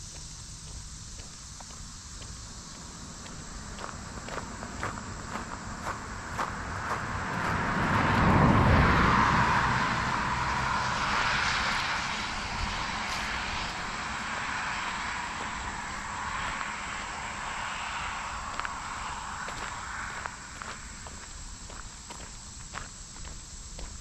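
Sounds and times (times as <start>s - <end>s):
footsteps on gravel: 0.0s - 7.7s, 12.6s - 24.0s
engine passing by: 1.7s - 23.1s.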